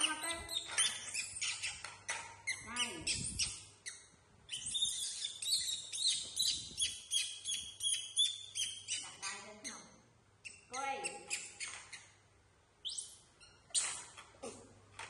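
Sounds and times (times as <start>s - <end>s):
rapid high-pitched chirping: 0.0s - 1.9s, 2.5s - 9.8s.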